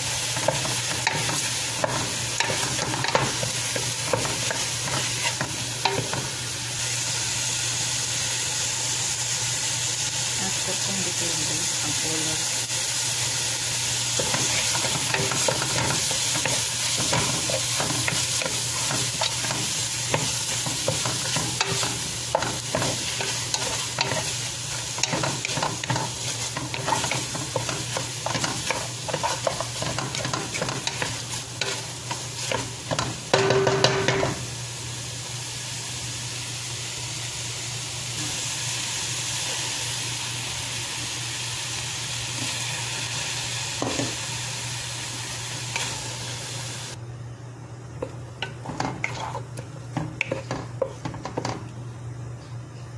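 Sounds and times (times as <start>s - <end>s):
chicken sizzling in a pot: 0.0s - 47.0s, 48.0s - 51.6s
wooden spatula scraping a pot: 14.2s - 32.6s, 48.4s - 51.6s.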